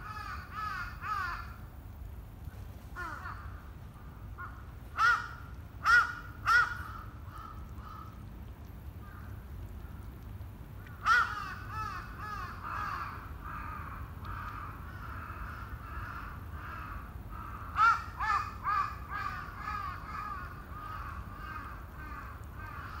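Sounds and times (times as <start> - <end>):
crows cawing: 0.0 - 1.6, 3.0 - 3.6, 4.4 - 8.2, 11.0 - 23.0.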